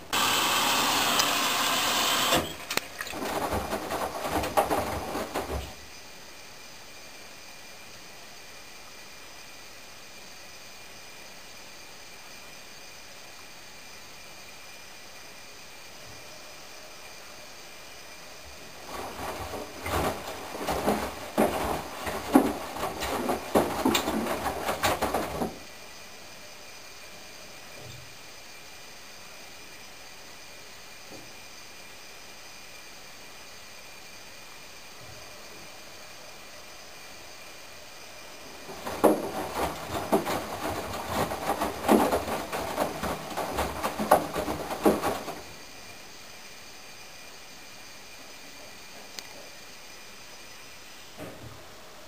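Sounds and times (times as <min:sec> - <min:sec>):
washing machine motor: 0:00.0 - 0:04.4
faint steady hiss: 0:00.0 - 0:52.0
laundry and water sloshing in drum: 0:02.4 - 0:05.9, 0:18.3 - 0:25.8, 0:38.3 - 0:45.9
water sloshing: 0:02.6 - 0:05.8.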